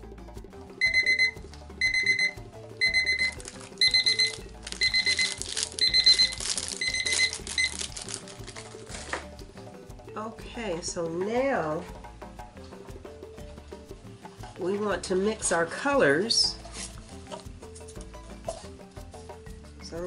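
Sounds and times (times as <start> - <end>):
kitchen timer beeping: 0.8 - 7.8
plastic rustling: 3.3 - 9.3, 16.6 - 17.5.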